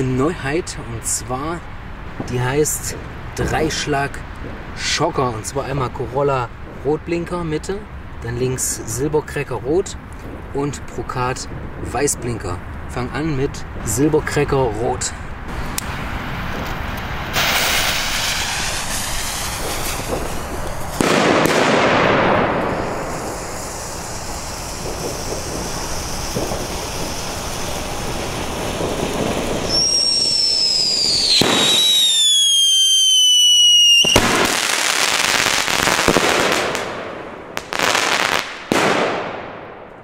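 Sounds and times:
flare burning with steady hiss: 0.0 - 40.0
firework shots bursting with crackling: 15.5 - 40.0
firework whistle falling in pitch: 29.6 - 34.2.

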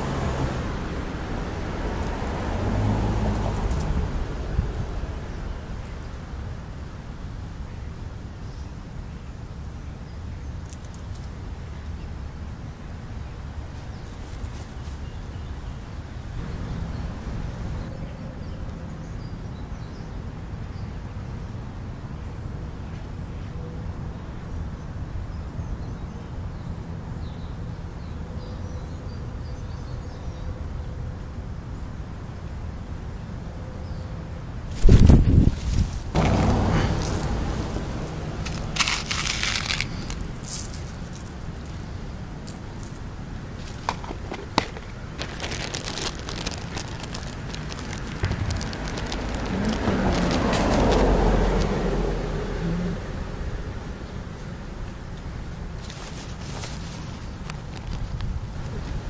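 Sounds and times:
car driving past: 0.0 - 5.7, 36.1 - 40.7, 47.6 - 54.8
low outdoor rumble: 31.2 - 59.0
food clicking and crackling: 37.0 - 51.7.

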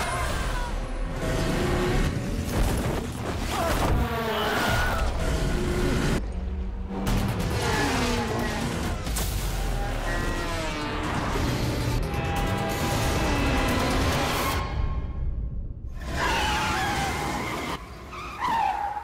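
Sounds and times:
car and motorcycle sound effects: 0.0 - 2.8, 4.0 - 15.0.

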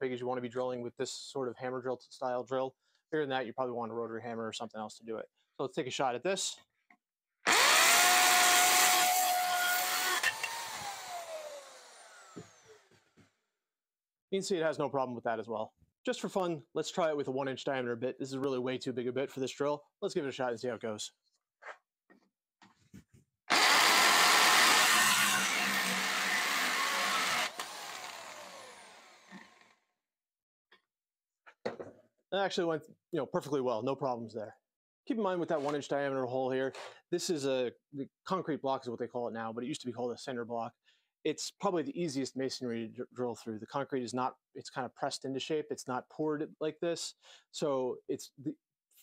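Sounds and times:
hammer drill drilling into concrete: 7.5 - 13.0, 23.5 - 29.8
knock: 31.6 - 32.0.

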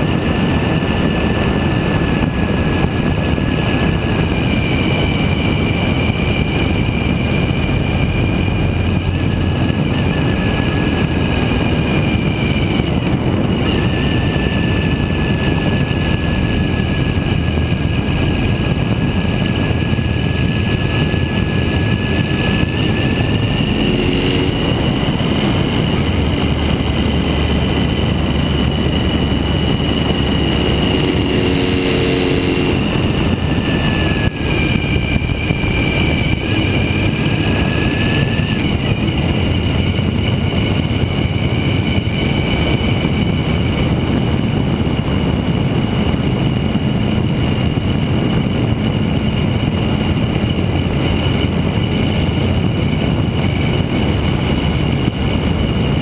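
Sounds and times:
motorcycle engine running: 0.0 - 56.0
wind rushing over microphone: 0.0 - 56.0
short tone: 22.1 - 26.2, 29.8 - 34.7.

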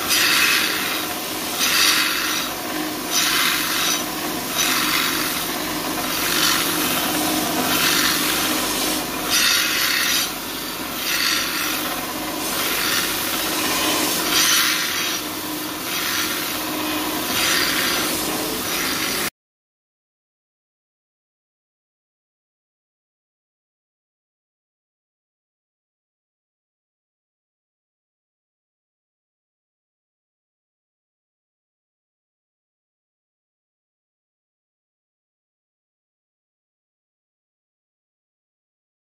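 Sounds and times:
belt grinder grinding steel: 0.0 - 19.3
machine hum: 0.0 - 19.3.

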